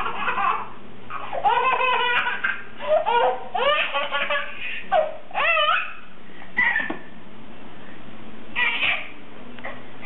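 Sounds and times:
baby squealing and giggling: 0.0s - 7.0s, 8.6s - 9.1s.

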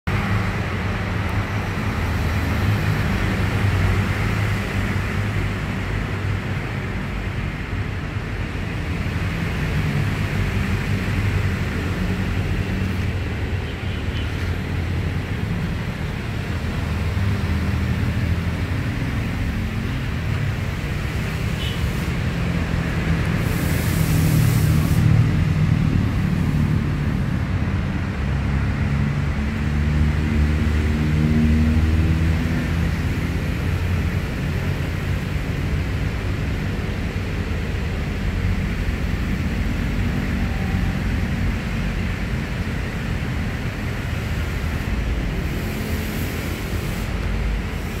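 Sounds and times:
brief hiss: 23.4s - 25.1s.

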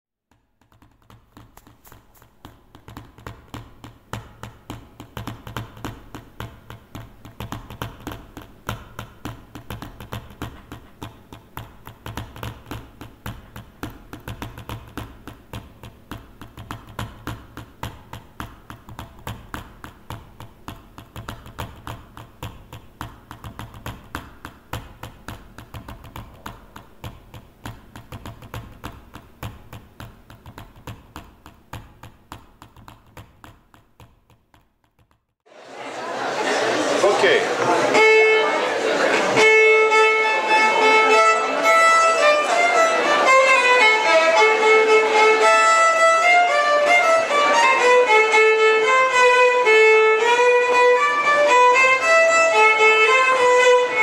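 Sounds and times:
footstep-like taps: 0.3s - 35.4s.

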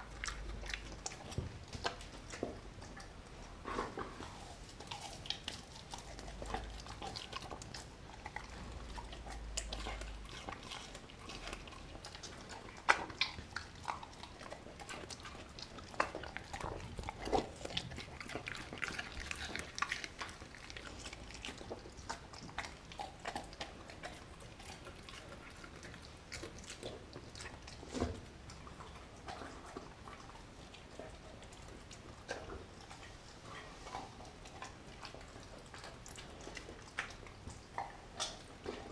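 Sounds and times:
dog chewing meat: 0.0s - 38.9s.

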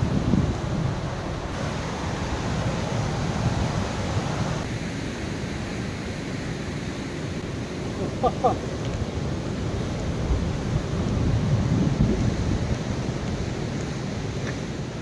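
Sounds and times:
wind buffeting microphone: 0.0s - 4.7s, 8.7s - 15.0s
river rapids rushing: 1.0s - 11.0s.

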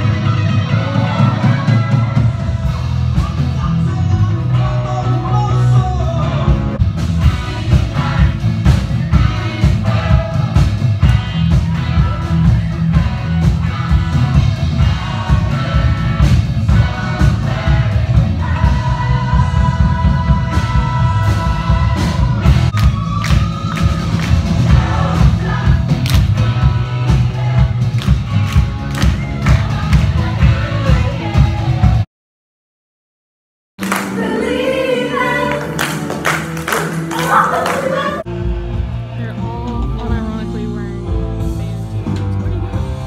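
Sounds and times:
rock song with singing: 0.0s - 32.0s.

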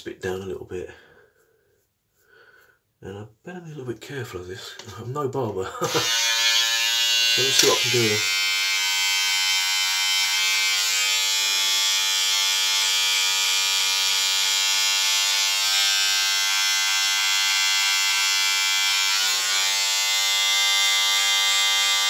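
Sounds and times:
electric shaver buzzing: 5.8s - 22.0s.

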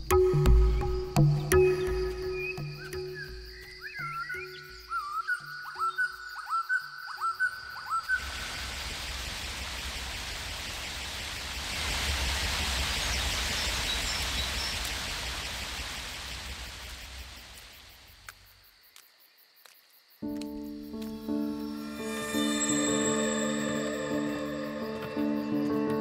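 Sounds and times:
waterfall rushing: 8.2s - 18.0s
short rising chirps: 21.8s - 26.0s.

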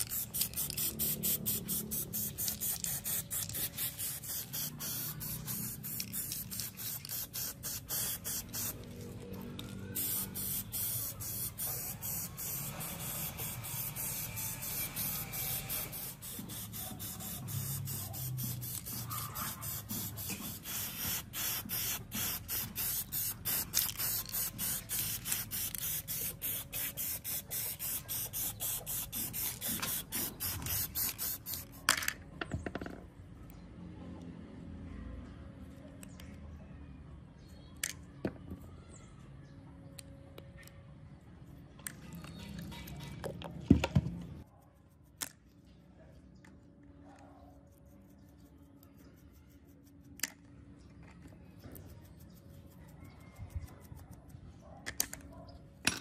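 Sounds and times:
spray paint hissing in bursts: 0.0s - 31.9s.

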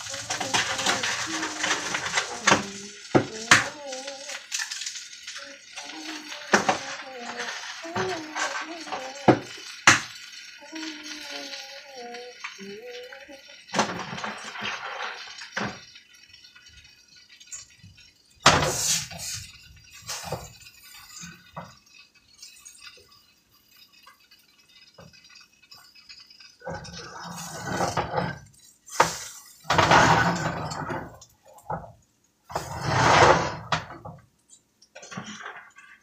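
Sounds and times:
utensil scraping a frying pan: 0.0s - 11.7s, 17.5s - 31.8s, 32.5s - 34.2s.

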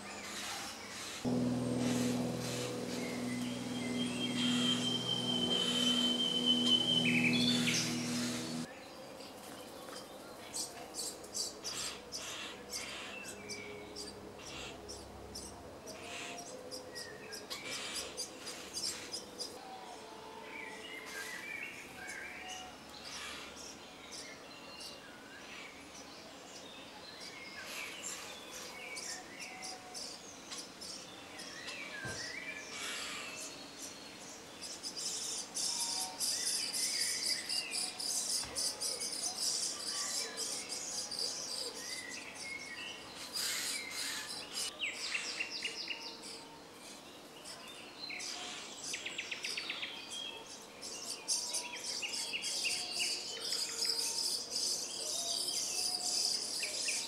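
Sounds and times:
starlings chattering: 1.3s - 8.7s.

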